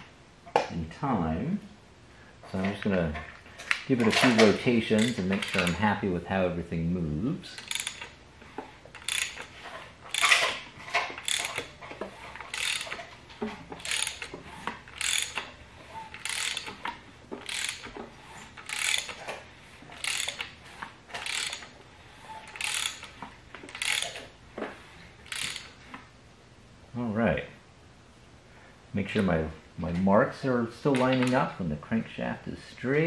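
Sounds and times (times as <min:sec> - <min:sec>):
socket ratchet clicking: 0:03.7 - 0:05.8, 0:07.6 - 0:08.2, 0:08.9 - 0:09.5, 0:11.2 - 0:11.8, 0:12.4 - 0:13.1, 0:13.8 - 0:15.5, 0:16.1 - 0:18.0, 0:18.6 - 0:19.3, 0:20.0 - 0:20.6, 0:21.2 - 0:21.7, 0:22.5 - 0:24.3, 0:25.2 - 0:25.8.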